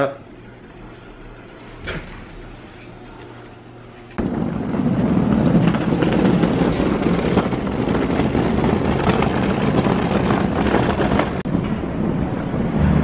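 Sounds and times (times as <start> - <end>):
rolling bag wheels rattling: 4.2 - 11.5.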